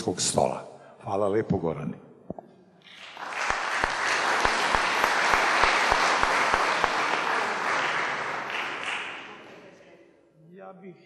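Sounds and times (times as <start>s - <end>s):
audience applauding: 2.9s - 9.8s.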